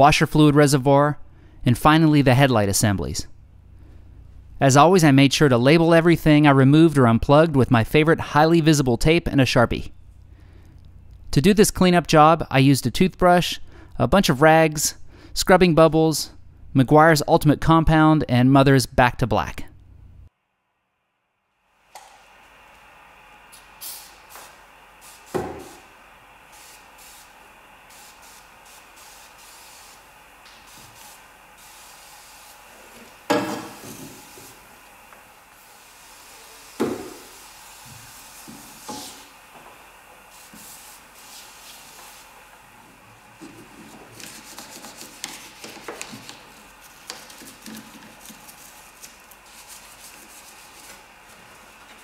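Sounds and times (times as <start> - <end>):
aerosol spray hissing bursts: 23.6 - 42.7
toothbrush scrubbing: 43.4 - 51.8.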